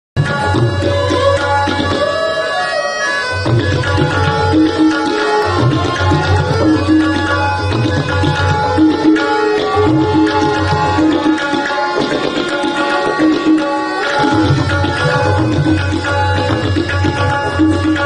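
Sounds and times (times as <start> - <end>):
tabla drum strokes: 0.2 - 2.6, 3.2 - 18.0
harmonium sustained notes: 0.3 - 12.1.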